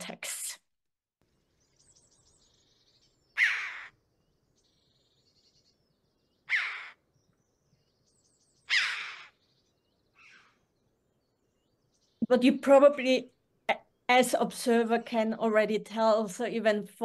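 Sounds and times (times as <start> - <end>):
harsh bird calls: 1.7 - 14.1.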